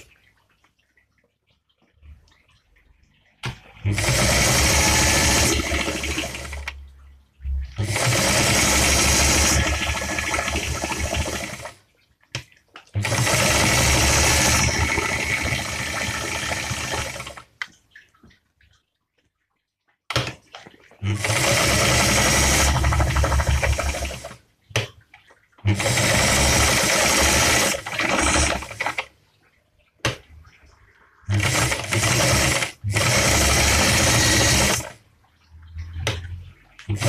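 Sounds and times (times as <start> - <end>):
sewing machine stitching: 3.5 - 6.8, 7.8 - 11.8, 13.0 - 17.5, 21.0 - 24.4, 25.7 - 29.1, 31.3 - 35.0.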